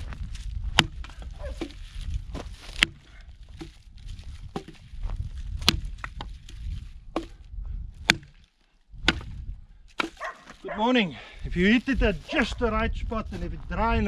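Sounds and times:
dry branches snapping: 0.0s - 7.4s, 8.0s - 10.7s.

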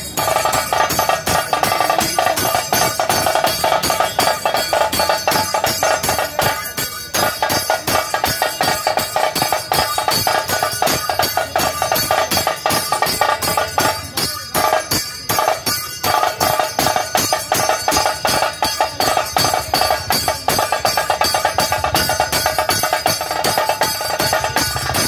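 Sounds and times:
barrel drums beating: 0.0s - 25.0s
rapid kettle drum rolls: 0.0s - 25.0s.

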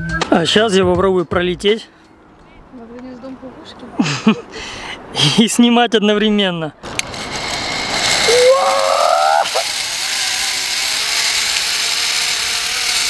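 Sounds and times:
zip-line pulleys whirring on cable: 6.8s - 13.0s.

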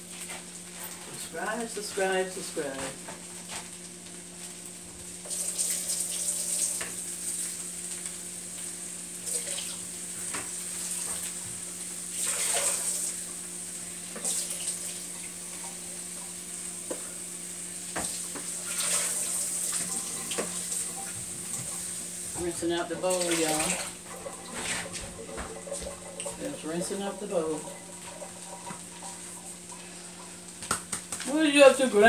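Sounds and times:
kitchen tap running: 4.9s - 32.0s
steady low hum: 13.0s - 32.0s
water splashing in a bowl: 22.4s - 31.3s.

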